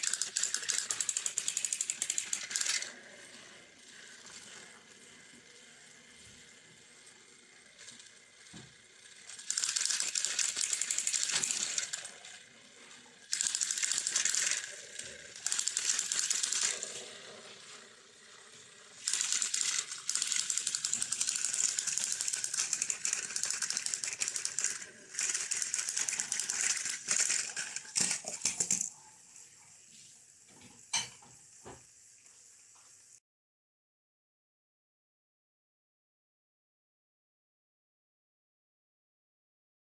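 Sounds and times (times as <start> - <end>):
toy train motors grinding: 0.0 - 29.5.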